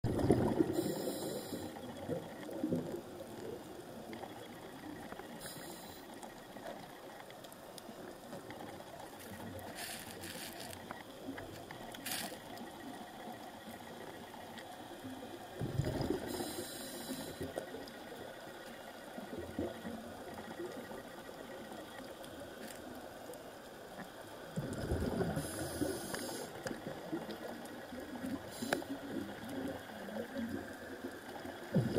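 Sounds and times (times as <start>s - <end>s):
low underwater rush: 0.0s - 6.0s
regulator bubbles gurgling: 0.0s - 22.3s, 24.0s - 31.9s
faint sharp clicks: 1.0s - 15.2s, 25.6s - 31.4s.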